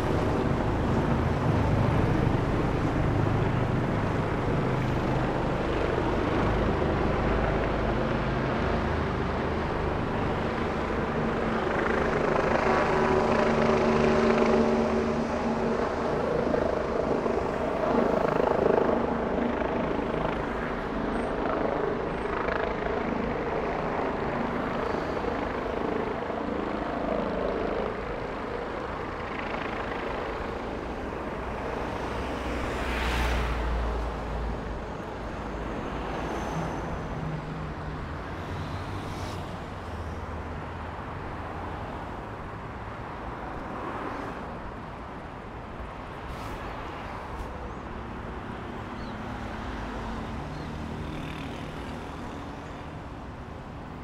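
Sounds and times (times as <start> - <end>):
cars and motorcycles passing: 0.0 - 26.9, 27.6 - 54.0
engine drone: 0.0 - 41.1.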